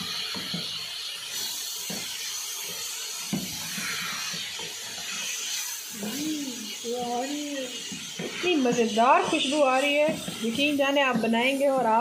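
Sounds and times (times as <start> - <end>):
food sizzling in a pan: 0.0 - 12.0
spatula scraping pan: 3.4 - 12.0.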